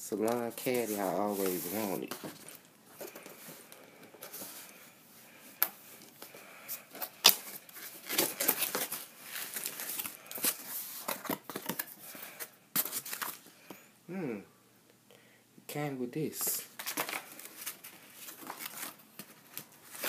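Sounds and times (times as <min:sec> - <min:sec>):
cardboard rustling and scraping: 0:00.2 - 0:04.7.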